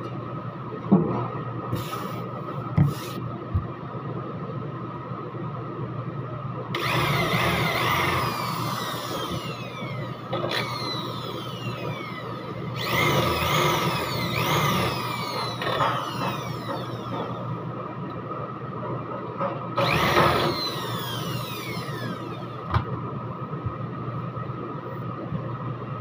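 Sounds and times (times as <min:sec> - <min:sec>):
electric drill whining: 0:06.8 - 0:17.4, 0:19.8 - 0:22.7.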